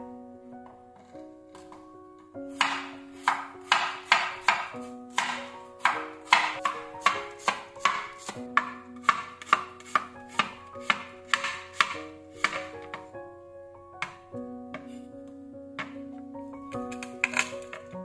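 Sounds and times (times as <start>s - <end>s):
soft background music: 0.0s - 18.0s
knife chopping on wooden board: 2.5s - 13.0s.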